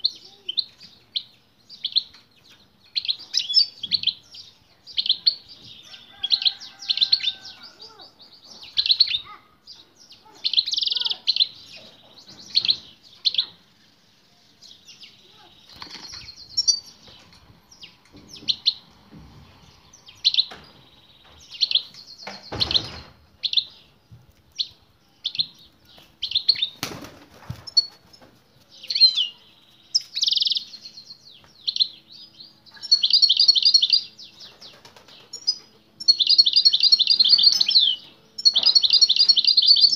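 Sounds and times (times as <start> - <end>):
bird twittering chirps: 14.7 - 18.9, 28.8 - 34.6, 35.2 - 39.9
wing flutters: 15.6 - 16.3.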